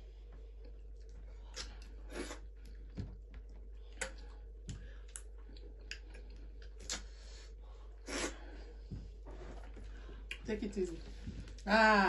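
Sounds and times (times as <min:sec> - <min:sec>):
mouth clicks and smacks chewing: 0:00.6 - 0:02.0, 0:03.8 - 0:07.1.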